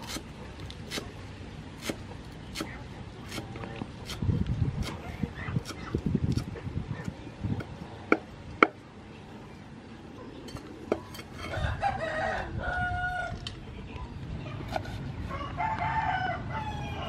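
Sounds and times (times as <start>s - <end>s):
rooster crowing: 11.4s - 13.4s, 15.3s - 17.0s.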